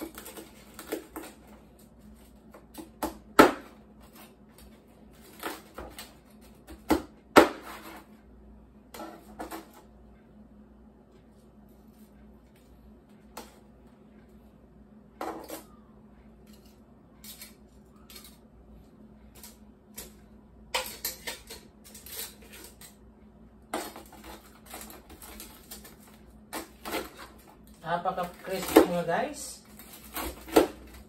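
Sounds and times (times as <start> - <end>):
utensils clinking on metal bowl: 20.8 - 23.0.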